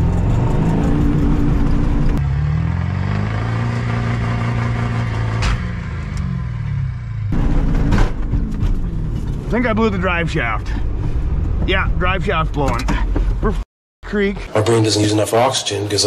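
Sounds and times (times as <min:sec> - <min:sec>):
diesel engine revving: 0:00.0 - 0:12.4.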